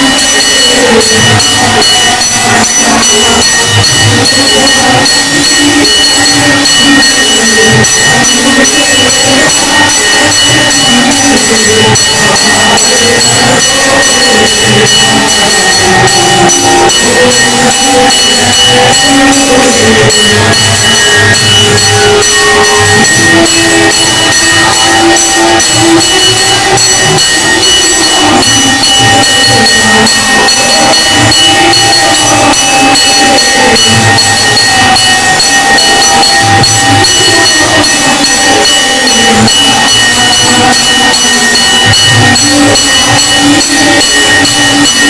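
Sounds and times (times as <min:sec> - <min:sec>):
rapid percussion strikes: 0:00.0 - 0:45.0
temple bells ringing: 0:00.0 - 0:45.0.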